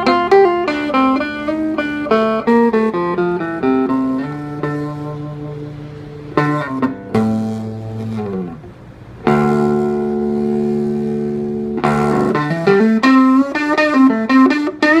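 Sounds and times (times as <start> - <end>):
electric guitar chord ringing: 0.0 - 15.0
electric guitar single notes: 0.0 - 15.0.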